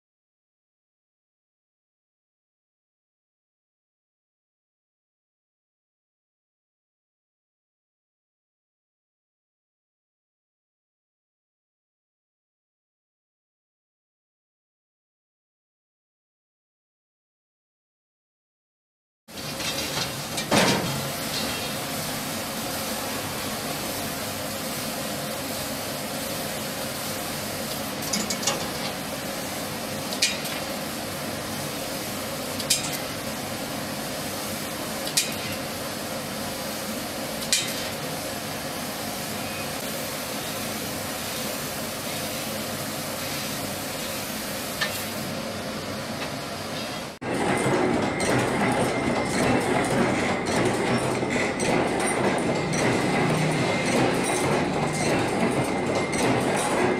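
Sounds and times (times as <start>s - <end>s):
high machine whine: 19.5s - 41.0s, 45.2s - 56.9s
laser cutting hiss: 21.0s - 35.8s, 39.0s - 45.3s
machine rattling: 28.0s - 29.1s, 47.2s - 56.9s.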